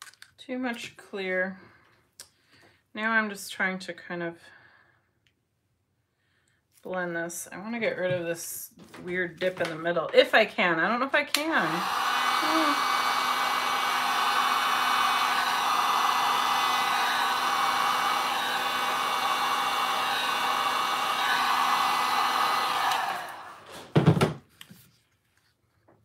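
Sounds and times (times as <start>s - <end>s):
heat gun whirring: 11.3s - 24.0s.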